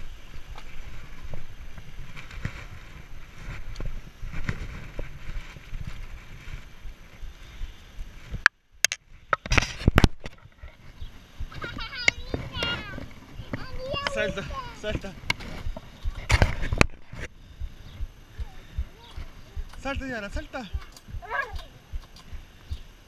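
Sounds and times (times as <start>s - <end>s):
bike rolling over grass: 0.0s - 8.4s, 9.4s - 17.3s.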